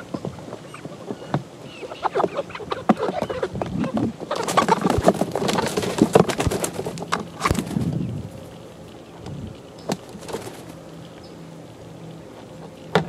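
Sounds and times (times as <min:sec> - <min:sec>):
young chickens clucking: 0:00.0 - 0:08.2.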